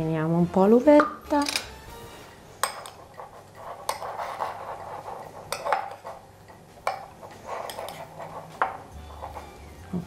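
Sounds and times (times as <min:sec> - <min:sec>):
spoon scraping bowl: 0:01.0 - 0:09.8
spoon clinking on bowl: 0:02.6 - 0:03.1, 0:05.5 - 0:09.4.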